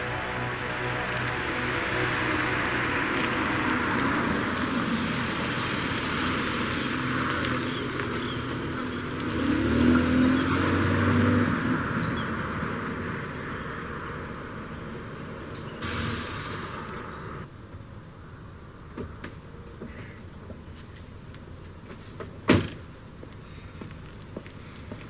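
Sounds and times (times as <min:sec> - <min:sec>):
vehicle accelerating past: 0:00.0 - 0:17.5
car engine and road noise: 0:00.0 - 0:25.0.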